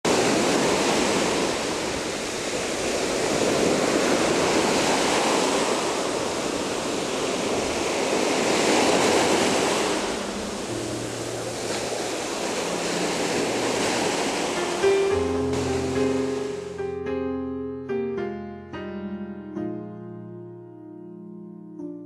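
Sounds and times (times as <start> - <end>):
ocean waves on beach: 0.0 - 17.3.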